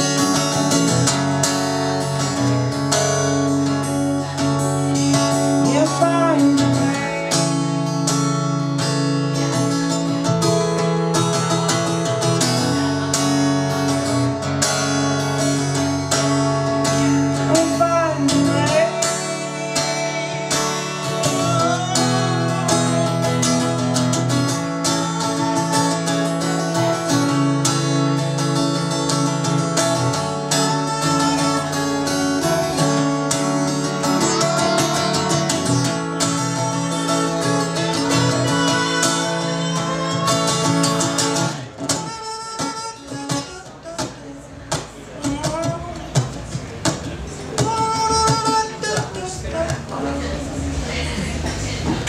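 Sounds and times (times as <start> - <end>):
acoustic guitar strumming: 0.0 - 52.0
man singing: 4.2 - 7.8, 16.6 - 27.9, 29.1 - 51.5.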